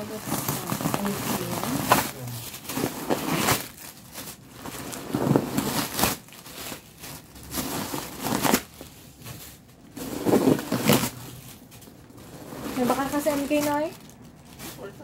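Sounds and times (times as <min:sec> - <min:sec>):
packing paper crinkling: 0:00.0 - 0:15.0.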